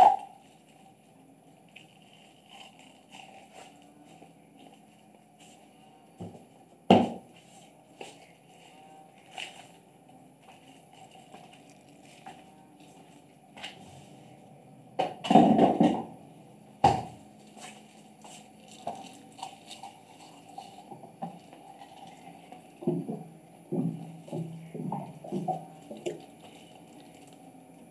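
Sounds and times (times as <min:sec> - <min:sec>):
kittens chewing: 0:10.6 - 0:13.3, 0:17.8 - 0:27.9.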